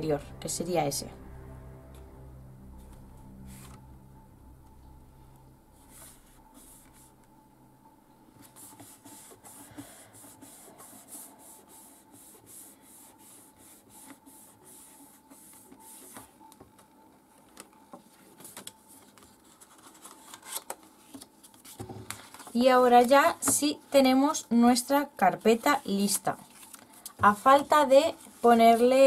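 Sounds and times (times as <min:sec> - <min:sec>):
paper rustling: 0:05.8 - 0:07.1, 0:18.0 - 0:23.1, 0:25.4 - 0:29.0
hands rubbing paper: 0:05.8 - 0:07.2, 0:08.4 - 0:16.4, 0:25.2 - 0:29.0.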